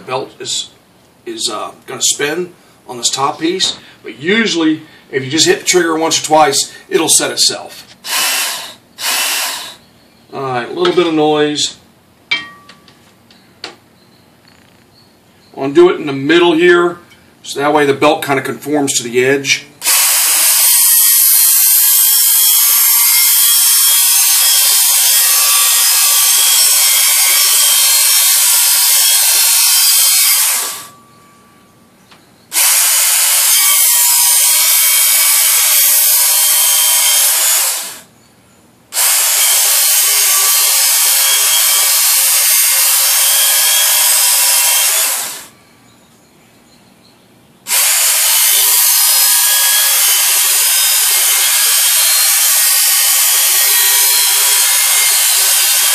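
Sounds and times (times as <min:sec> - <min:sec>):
belt sharpener grinding steel: 0:19.9 - 0:31.0, 0:39.0 - 0:45.5, 0:47.7 - 0:55.9.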